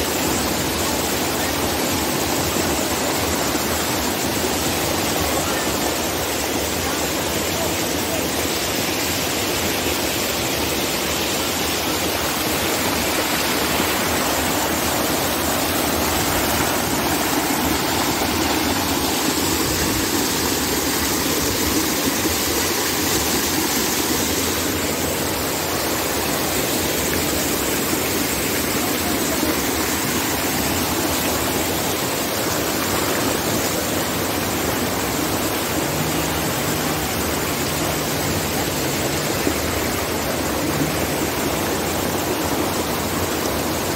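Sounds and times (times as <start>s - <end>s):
running water rushing: 0.0s - 43.9s.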